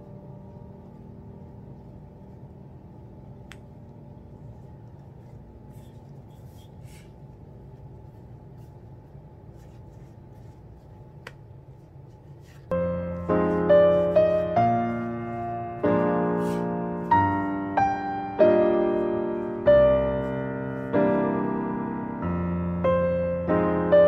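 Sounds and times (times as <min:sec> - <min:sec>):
hands rubbing dough and cloth: 0:04.6 - 0:17.7.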